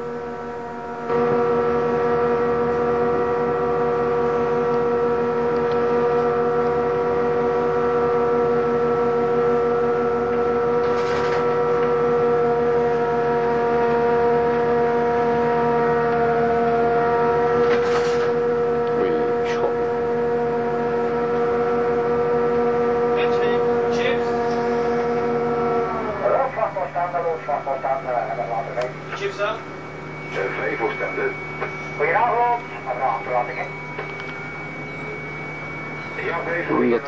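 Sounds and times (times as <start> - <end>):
ship's horn blast: 0.0 - 10.8, 11.4 - 26.1.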